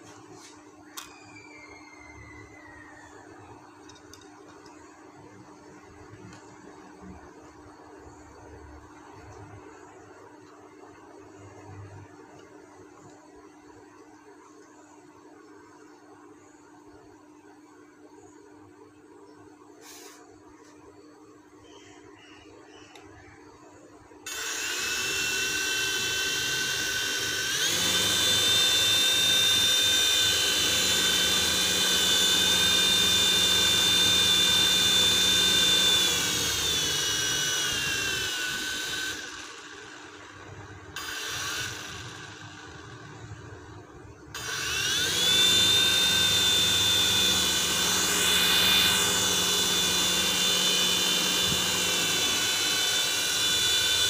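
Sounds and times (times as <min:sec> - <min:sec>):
toy helicopter motors whining: 0:01.0 - 0:04.7, 0:24.3 - 0:43.4, 0:44.3 - 0:54.0.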